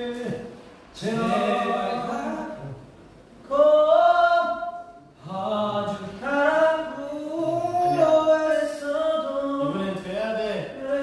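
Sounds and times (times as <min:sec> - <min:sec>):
men singing unaccompanied: 0:01.0 - 0:02.7, 0:03.4 - 0:11.0.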